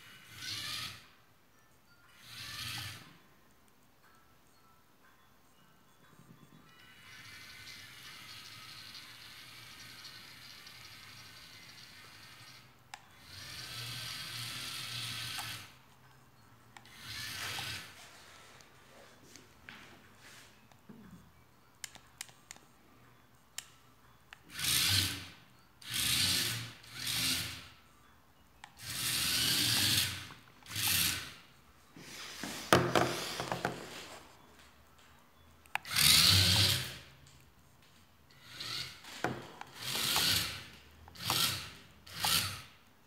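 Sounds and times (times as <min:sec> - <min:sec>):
toy car gear motors whirring: 0:00.0 - 0:01.2, 0:02.1 - 0:03.2, 0:06.7 - 0:15.8, 0:16.8 - 0:18.1, 0:24.4 - 0:27.8, 0:28.6 - 0:31.5, 0:35.7 - 0:37.2, 0:38.3 - 0:42.9.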